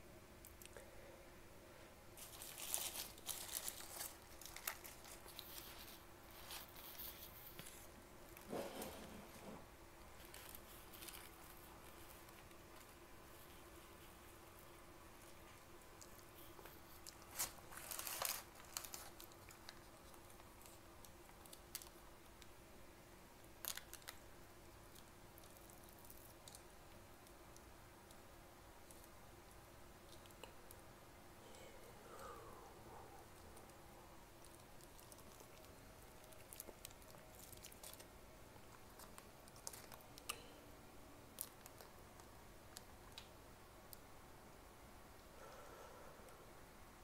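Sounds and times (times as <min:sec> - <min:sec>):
paper sachet crinkling and tearing: 0:02.2 - 0:07.9, 0:17.0 - 0:20.7
paper wrapper crinkling: 0:02.2 - 0:08.9, 0:10.1 - 0:14.1, 0:15.2 - 0:22.0, 0:23.6 - 0:24.2, 0:34.4 - 0:38.1, 0:38.7 - 0:40.3.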